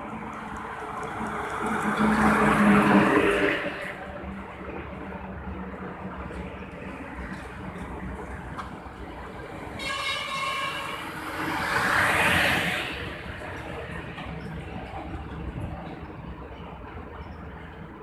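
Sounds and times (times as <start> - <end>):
truck passing by: 0.0 - 4.1
truck air horn: 9.8 - 11.2.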